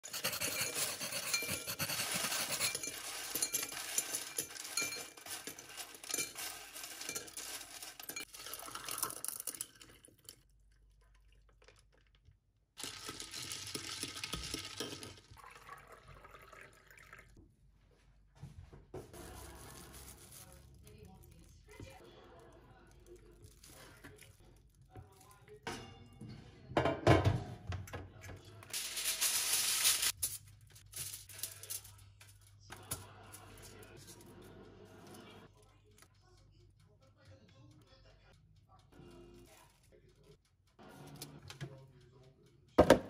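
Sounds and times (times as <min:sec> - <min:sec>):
ice cubes clinking into glass: 0:02.0 - 0:09.8, 0:12.8 - 0:15.3
liquid pouring over ice: 0:03.1 - 0:12.1, 0:12.8 - 0:17.3.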